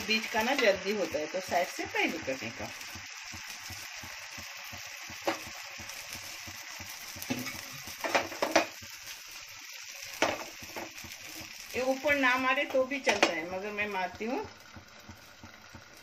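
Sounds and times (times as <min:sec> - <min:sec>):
batter sizzling in frying pan: 0:00.0 - 0:16.0
ladle knocking on pan: 0:04.7 - 0:05.6, 0:07.2 - 0:08.8, 0:13.0 - 0:13.5.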